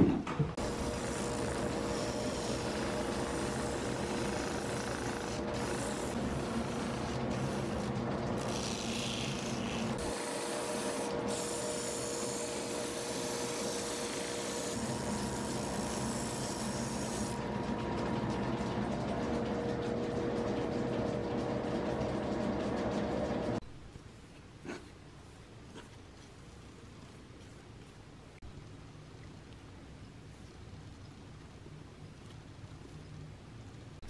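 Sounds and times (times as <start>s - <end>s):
sanding wheel grinding leather: 0.6s - 17.4s
machine motor hum: 0.6s - 23.6s.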